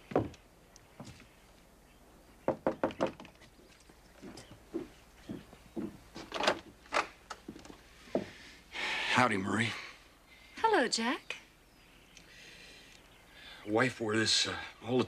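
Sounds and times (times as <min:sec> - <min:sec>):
knuckles knocking on wooden door: 0:02.5 - 0:03.2.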